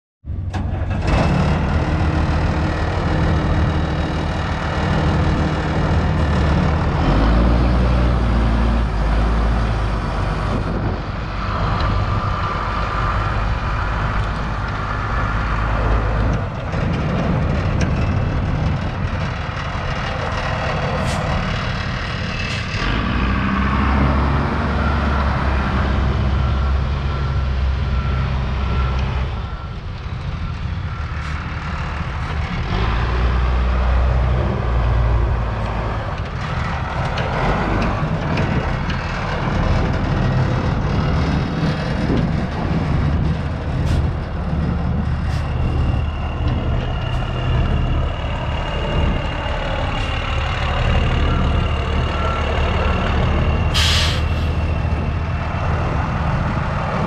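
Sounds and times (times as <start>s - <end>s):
diesel truck engine idling: 35.3s - 57.0s.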